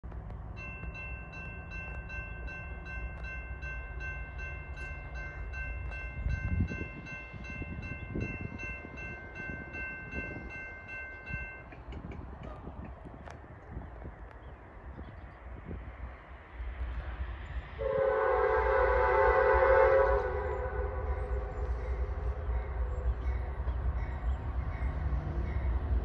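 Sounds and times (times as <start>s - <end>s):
train horn chord: 17.8s - 23.5s.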